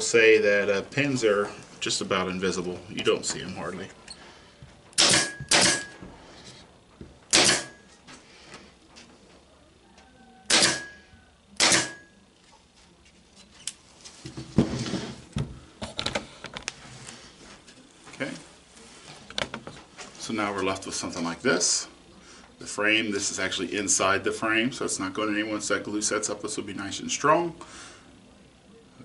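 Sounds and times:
pneumatic pin nailer firing: 0:05.0 - 0:05.9, 0:07.3 - 0:07.8, 0:10.5 - 0:10.9, 0:11.6 - 0:12.0.

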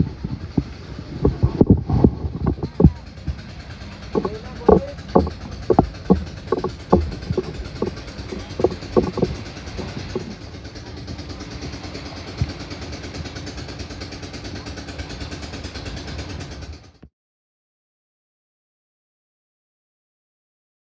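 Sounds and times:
wind rumble on microphone: 0:00.0 - 0:10.4
people's voices: 0:00.0 - 0:12.8
distant boat engine humming: 0:00.0 - 0:17.0.

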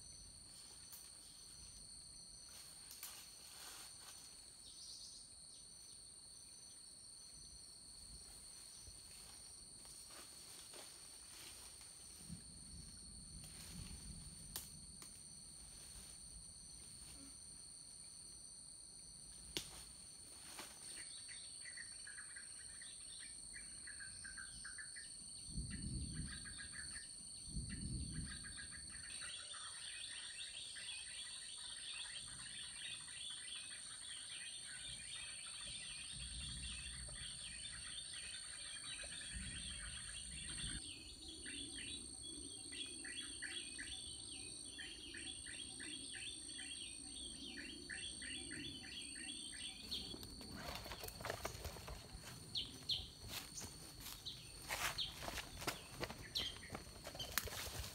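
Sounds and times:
small birds chirping: 0:31.3 - 0:57.9.

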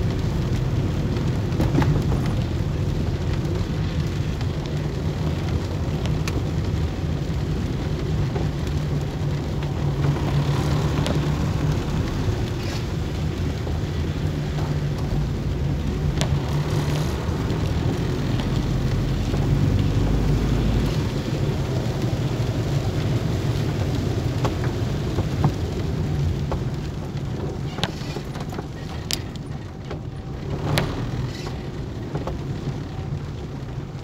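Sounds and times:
car engine hum: 0:00.0 - 0:34.0
raindrops ticking on windshield: 0:00.0 - 0:34.0
tyres on wet road: 0:00.0 - 0:34.0.

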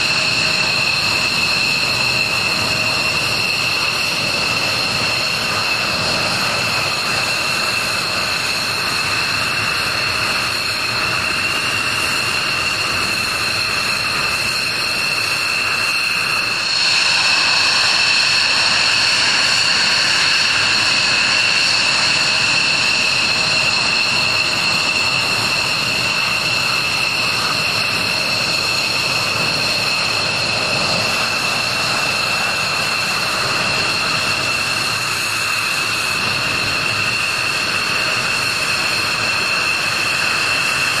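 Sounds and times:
jet engine whine: 0:00.0 - 0:41.0
rushing hiss: 0:16.4 - 0:28.0.

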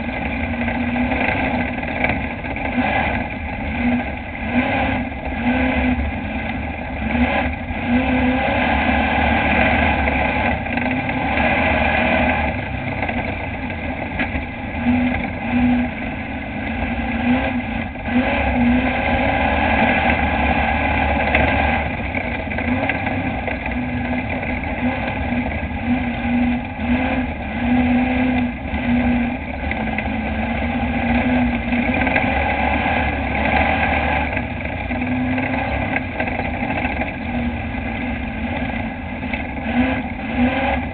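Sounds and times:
race truck engine running hard: 0:00.0 - 0:40.9.

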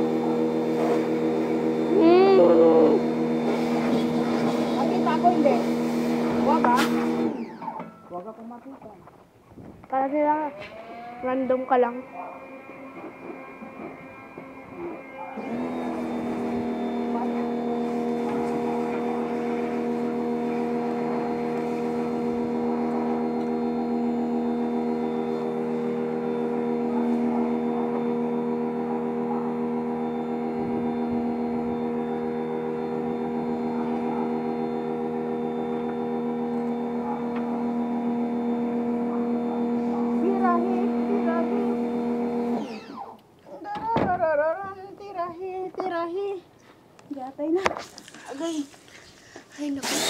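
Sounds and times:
electric pressure washer humming: 0:00.0 - 0:08.4, 0:09.9 - 0:43.2, 0:47.8 - 0:50.0.

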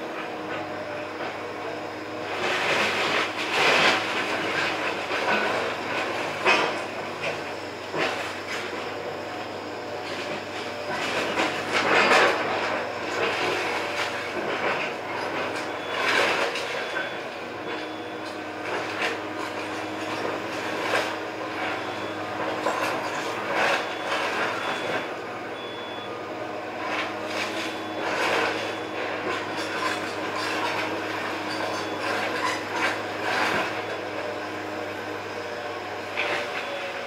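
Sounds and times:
excavator diesel engine: 0:00.0 - 0:37.0.

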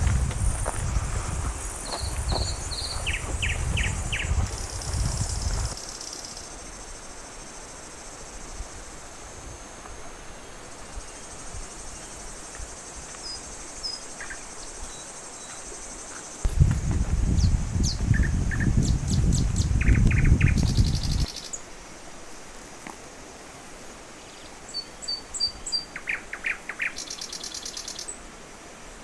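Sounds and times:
footsteps on dirt path: 0:00.0 - 0:05.8, 0:15.4 - 0:17.4
insects buzzing: 0:00.0 - 0:29.0
bird chirps: 0:01.8 - 0:04.5.

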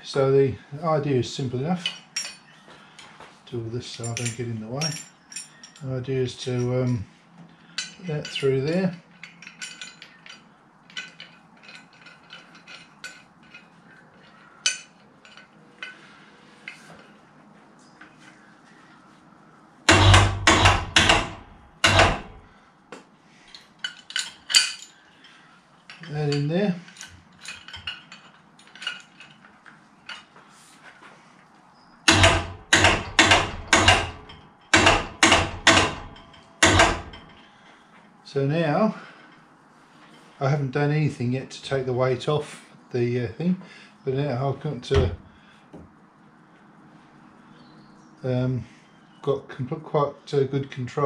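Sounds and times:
metal clinks and scrapes: 0:01.6 - 0:03.2, 0:03.8 - 0:17.2, 0:23.4 - 0:31.0
metal parts clicking and tapping: 0:01.8 - 0:03.1, 0:04.0 - 0:07.0, 0:07.7 - 0:16.0, 0:19.9 - 0:22.4, 0:23.5 - 0:30.4, 0:32.1 - 0:37.5
sharp metallic clack: 0:19.9 - 0:22.4, 0:32.1 - 0:37.4.

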